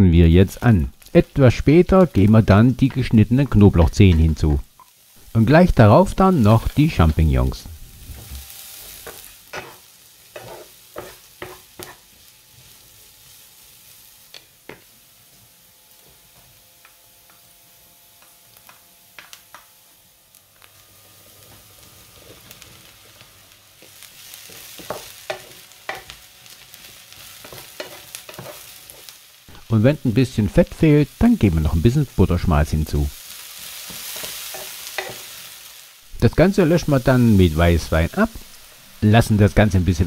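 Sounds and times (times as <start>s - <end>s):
onions sizzling in pan: 0.4s - 40.0s
spatula knocking and scraping pan: 8.1s - 9.8s, 10.4s - 12.0s, 23.8s - 26.2s, 27.4s - 29.1s, 33.8s - 35.3s.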